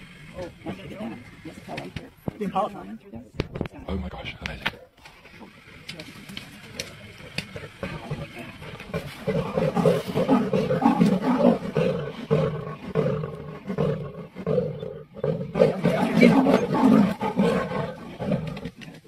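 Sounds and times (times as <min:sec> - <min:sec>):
big cats snarling and growling: 0:05.1 - 0:19.0.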